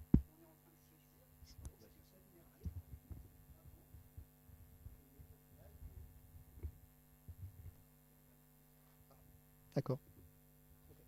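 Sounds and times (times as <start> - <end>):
electrical hum: 0.0 - 11.0
faint low thumps: 2.6 - 7.8.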